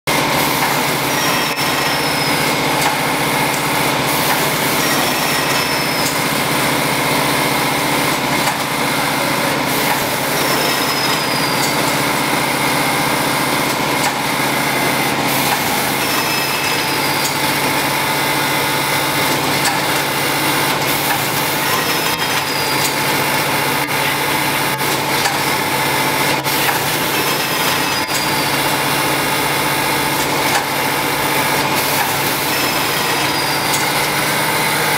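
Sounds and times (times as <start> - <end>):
machine motor hum: 0.1 - 34.9
machine clicks: 19.2 - 23.1.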